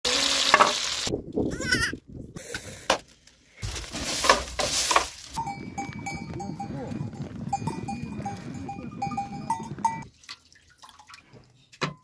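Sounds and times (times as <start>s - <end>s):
rustling and crackling: 3.1s - 10.0s.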